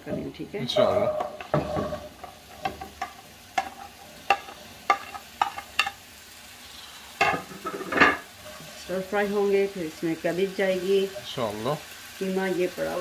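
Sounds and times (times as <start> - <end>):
potatoes sizzling in oil: 0.0 - 13.0
spatula clatter: 0.8 - 6.0
spatula tapping plate and pan: 1.0 - 6.0.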